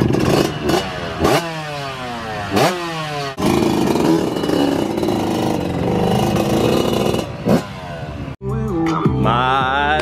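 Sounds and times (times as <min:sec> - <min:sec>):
two-stroke motorbike revving: 0:00.0 - 0:08.4.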